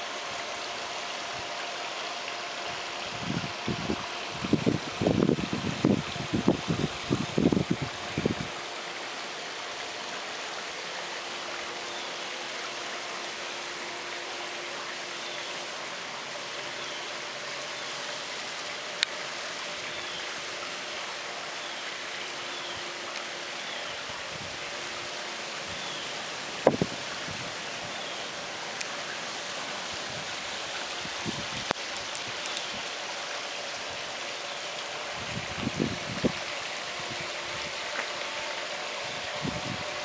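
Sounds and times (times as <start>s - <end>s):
outdoor hiss: 0.0s - 40.0s
wind buffeting microphone: 2.7s - 8.6s, 26.6s - 27.6s, 31.0s - 32.9s, 35.1s - 37.8s, 39.0s - 40.0s.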